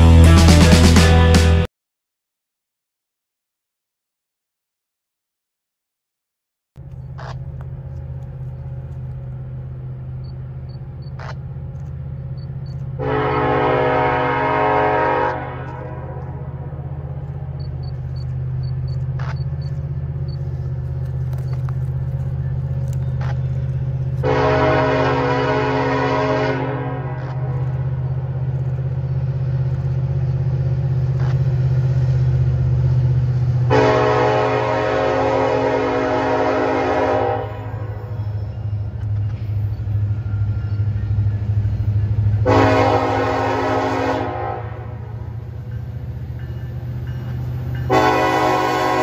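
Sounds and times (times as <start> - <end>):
locomotive engine drone: 0.0 - 1.7, 6.8 - 49.0
locomotive air horn blasts: 13.0 - 17.0, 24.2 - 27.8, 33.7 - 38.4, 42.4 - 45.3, 47.9 - 49.0.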